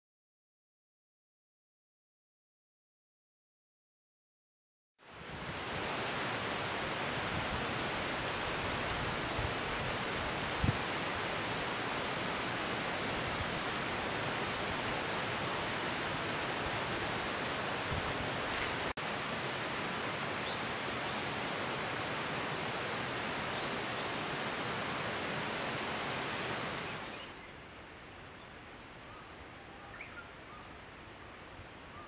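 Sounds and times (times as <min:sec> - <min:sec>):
stream water rushing over rocks: 0:05.1 - 0:27.9.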